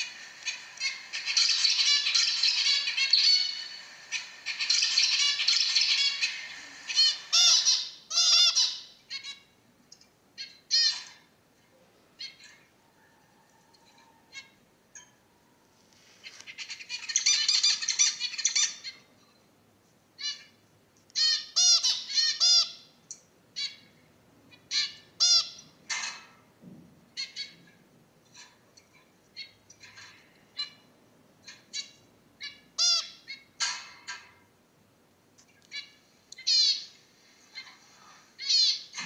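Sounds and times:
finches singing: 0.0 - 9.3
finch chirps and calls: 0.1 - 9.4, 10.4 - 11.2, 16.2 - 19.1, 21.2 - 22.9, 24.5 - 26.2, 35.7 - 39.0.

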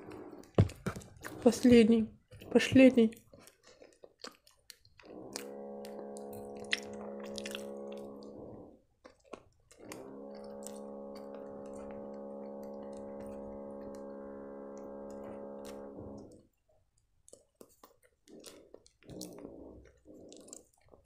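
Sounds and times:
chewing pastry: 0.0 - 12.0, 15.2 - 21.0
droning hum: 5.1 - 8.8, 9.8 - 16.4.

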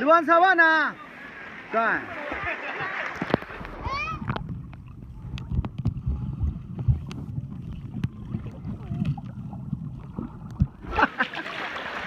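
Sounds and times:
underwater clicks and knocks: 3.1 - 10.8
muffled underwater rumble: 3.2 - 11.0.

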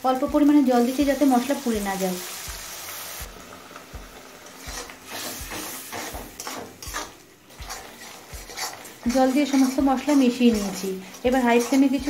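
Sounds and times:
water sizzling in hot oil: 0.0 - 12.0
metal spatula scraping pan: 4.4 - 12.0.

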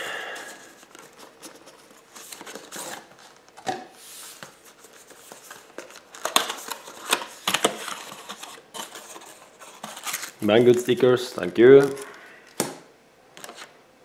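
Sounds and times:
cardboard rustling and scraping: 0.6 - 11.0.

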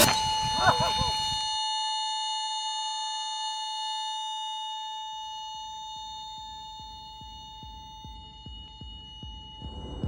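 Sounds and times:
low pulsing beat: 0.0 - 1.4, 6.4 - 10.0.

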